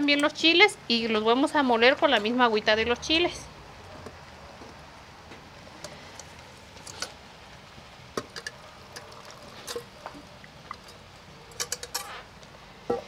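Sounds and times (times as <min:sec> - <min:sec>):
soft drips and plops: 0:05.8 - 0:12.6
liquid pouring into glass jar: 0:08.2 - 0:09.9.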